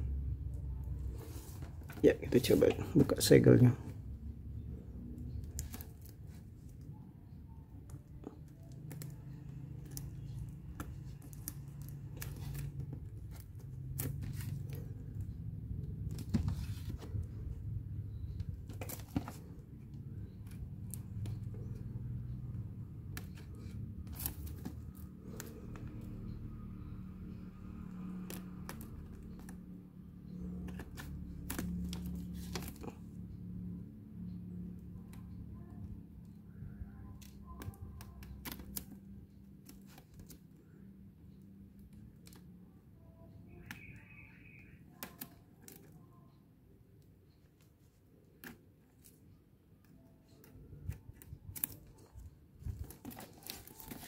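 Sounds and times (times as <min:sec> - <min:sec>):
plastic wrap crinkling: 0:51.5 - 0:54.0.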